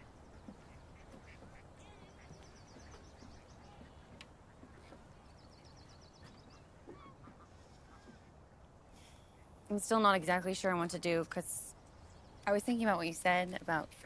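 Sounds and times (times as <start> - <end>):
waterfowl calling softly: 0.0 - 8.4.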